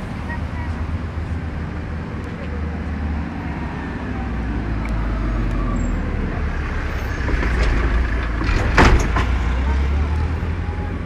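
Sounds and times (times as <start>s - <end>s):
engine rumbling: 0.0s - 11.0s.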